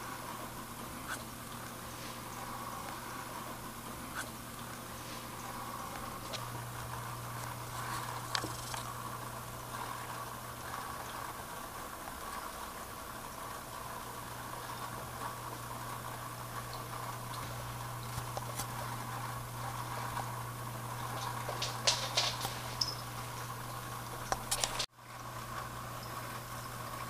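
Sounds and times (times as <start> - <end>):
aquarium equipment humming: 0.0 - 27.0.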